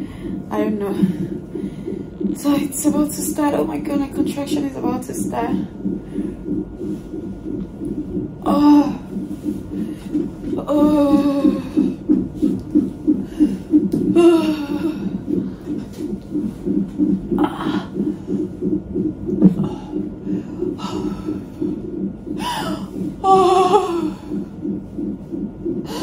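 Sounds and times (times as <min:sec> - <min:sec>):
doppler heartbeat whooshing pulse: 0:00.0 - 0:26.0
woman groaning and breathing: 0:10.6 - 0:12.0, 0:13.4 - 0:15.3, 0:22.4 - 0:24.4.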